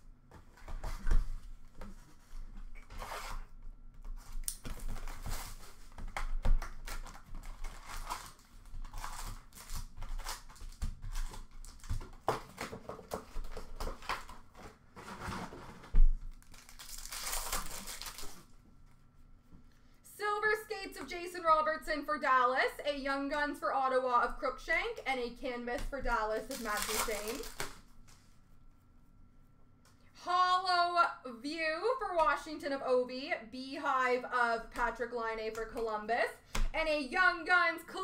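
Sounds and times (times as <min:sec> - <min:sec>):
cardboard rustling: 0:04.1 - 0:18.8, 0:26.1 - 0:28.4
plastic wrap crinkling and tearing: 0:04.2 - 0:15.4, 0:16.2 - 0:18.6, 0:26.4 - 0:27.9.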